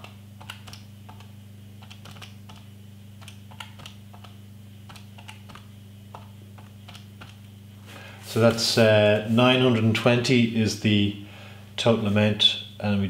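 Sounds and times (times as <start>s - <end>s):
calculator keys clicking: 0.0s - 7.4s
steady low hum: 0.0s - 13.0s.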